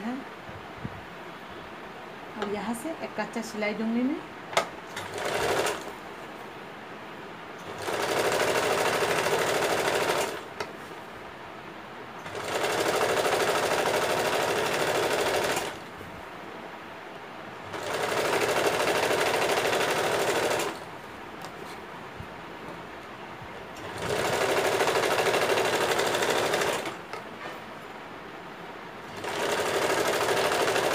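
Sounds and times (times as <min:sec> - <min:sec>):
electric sewing machine stitching: 0:04.9 - 0:05.9, 0:07.6 - 0:10.5, 0:12.3 - 0:15.8, 0:17.7 - 0:20.8, 0:23.8 - 0:27.1, 0:29.1 - 0:30.9.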